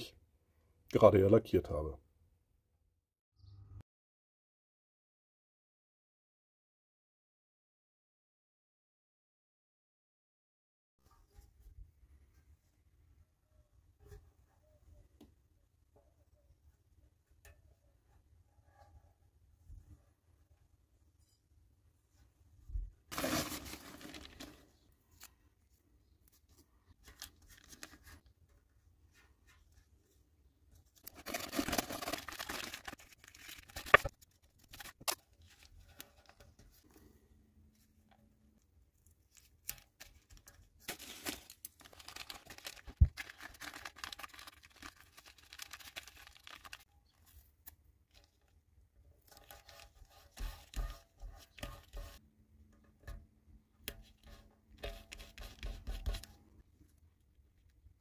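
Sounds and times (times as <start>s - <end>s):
masking tape rustling and tearing: 23.1s - 25.3s, 31.0s - 36.4s, 39.3s - 48.5s.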